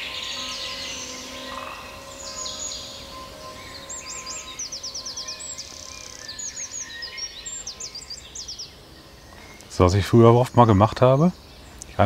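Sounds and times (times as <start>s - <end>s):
songbirds singing: 0.0s - 12.0s.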